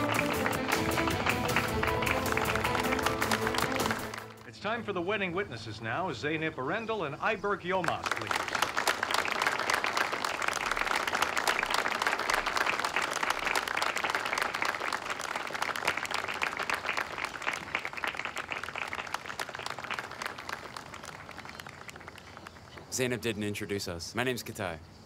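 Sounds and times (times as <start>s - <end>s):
crowd applauding: 0.0s - 4.5s, 7.8s - 23.2s.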